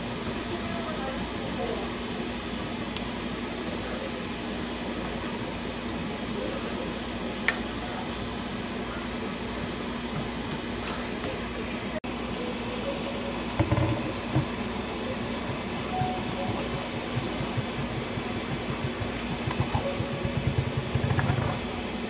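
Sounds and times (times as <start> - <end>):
steady low hum: 10.9 - 22.0
food sizzling in a wok: 12.1 - 20.1
spatula knocking against pan: 13.6 - 14.6, 15.4 - 21.7.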